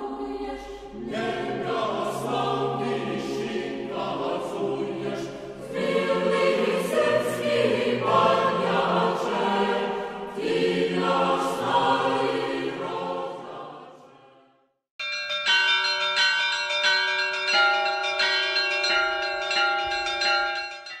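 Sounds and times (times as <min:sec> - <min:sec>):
choir singing: 0:00.0 - 0:14.6
bells ringing: 0:15.0 - 0:21.0.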